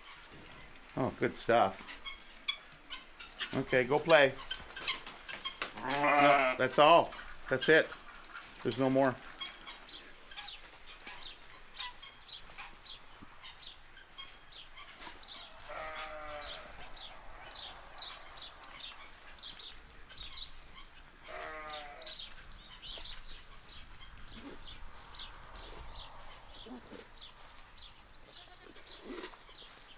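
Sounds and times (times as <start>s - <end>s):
goat bleating: 5.8s - 6.7s, 15.6s - 16.8s, 21.3s - 22.2s, 28.3s - 28.9s.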